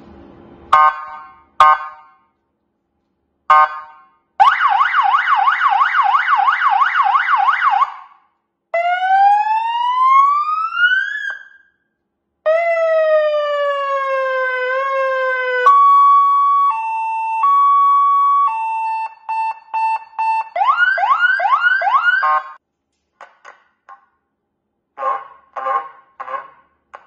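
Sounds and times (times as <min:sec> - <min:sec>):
electronic car siren: 0:00.8 - 0:02.2, 0:03.5 - 0:08.2, 0:08.8 - 0:11.7, 0:12.5 - 0:22.6.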